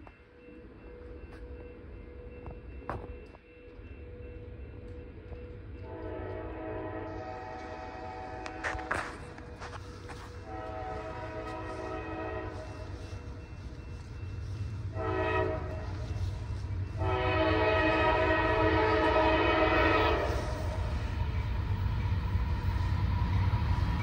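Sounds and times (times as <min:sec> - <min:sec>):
locomotive air horn blasts: 0:05.9 - 0:13.2, 0:14.9 - 0:16.3, 0:17.0 - 0:20.8.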